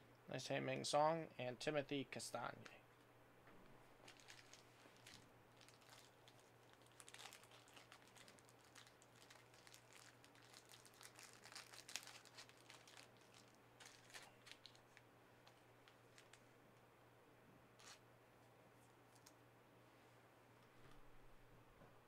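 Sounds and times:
low electrical hum: 0:00.0 - 0:22.0
wrappers crinkling: 0:04.0 - 0:16.4, 0:17.8 - 0:18.0.

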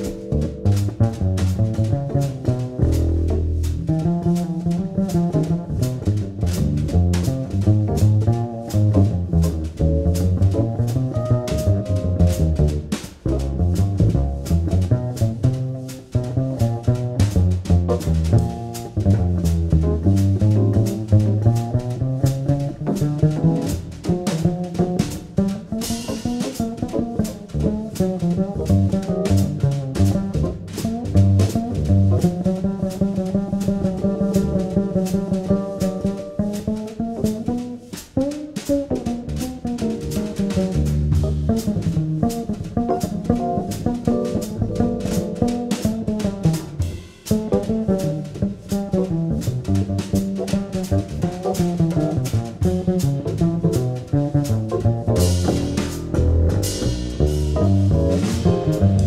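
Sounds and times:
drum kit with cymbals: 0:00.0 - 0:59.0
plucked double bass: 0:00.0 - 0:59.0.

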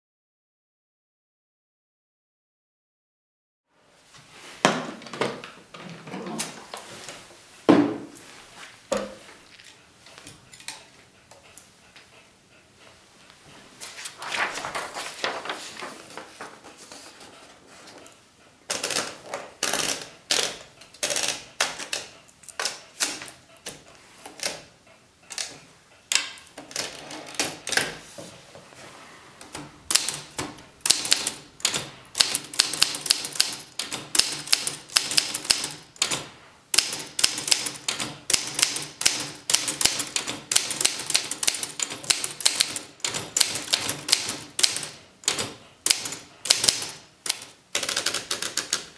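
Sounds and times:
typewriter keys clacking: 0:18.7 - 0:24.7, 0:25.3 - 0:27.9, 0:29.5 - 0:48.9.

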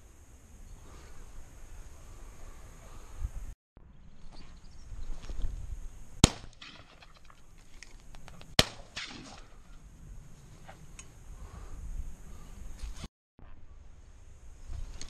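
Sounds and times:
shotgun shots with echo: 0:06.2 - 0:07.1, 0:08.6 - 0:09.5.

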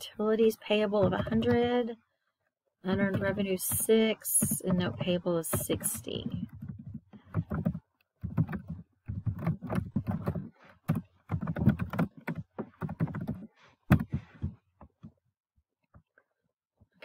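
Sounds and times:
computer keyboard typing: 0:03.0 - 0:14.1.

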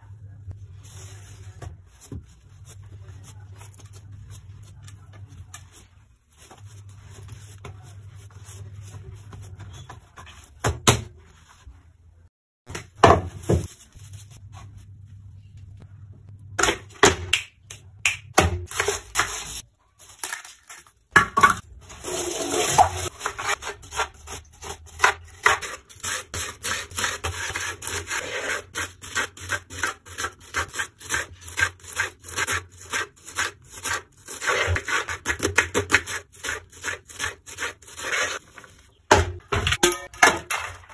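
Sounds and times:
onion peeling scraping and rustling: 0:21.8 - 0:39.0.

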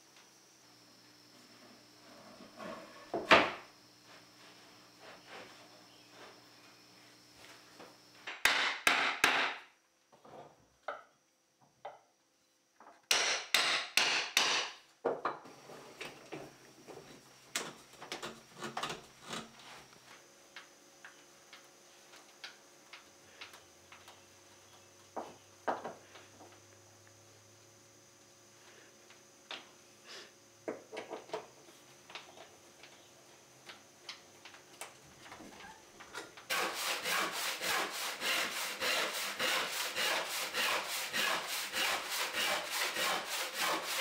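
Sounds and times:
hammering on wood: 0:08.3 - 0:09.6, 0:13.1 - 0:14.8
hand tools clicking on wood: 0:36.4 - 0:44.0.

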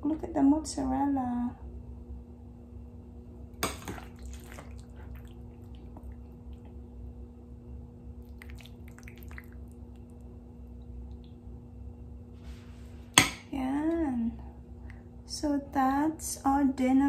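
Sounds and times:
low hum: 0:00.0 - 0:17.0.

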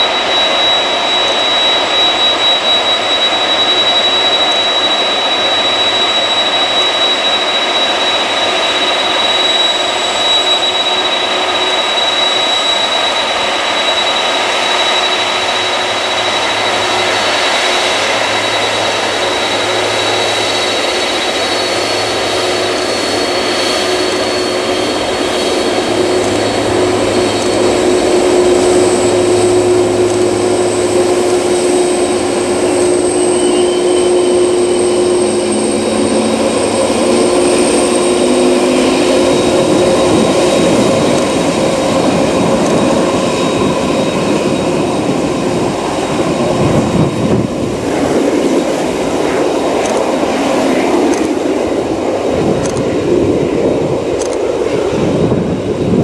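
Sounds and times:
jet engines whining: 0:00.0 - 0:56.0
deep exhaust rumble: 0:21.7 - 0:43.7.

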